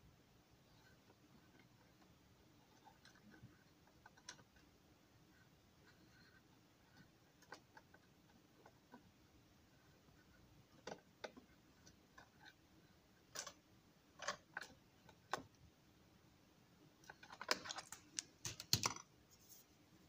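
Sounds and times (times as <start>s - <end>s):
clicks and taps of model pieces: 17.1s - 19.1s.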